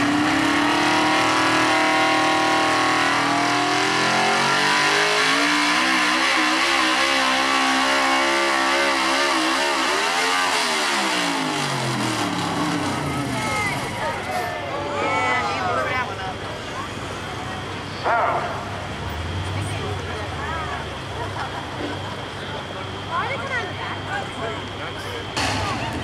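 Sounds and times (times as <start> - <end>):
truck engine revving under load: 0.0 - 14.6, 16.0 - 23.3, 23.9 - 26.0.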